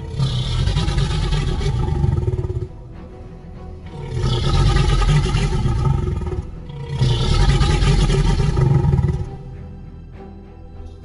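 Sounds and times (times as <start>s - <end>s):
dinosaur roars: 0.0s - 2.8s, 3.9s - 9.4s.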